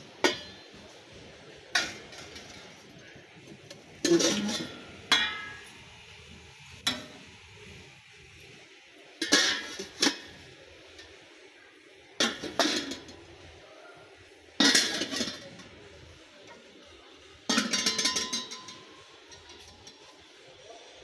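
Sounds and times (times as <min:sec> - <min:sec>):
pans clanking together: 0:00.2 - 0:00.8, 0:01.7 - 0:02.8, 0:04.0 - 0:05.7, 0:09.2 - 0:10.5, 0:12.2 - 0:13.2, 0:14.6 - 0:15.8, 0:17.5 - 0:20.2.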